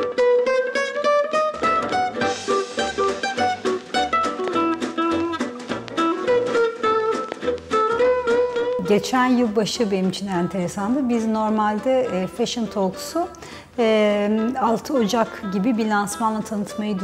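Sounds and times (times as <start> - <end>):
plucked-string melody: 0.0 - 13.4.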